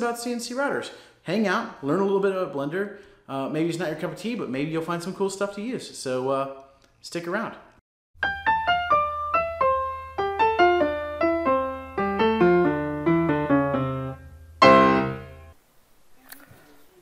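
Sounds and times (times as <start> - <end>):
piano jingle: 8.2 - 15.6.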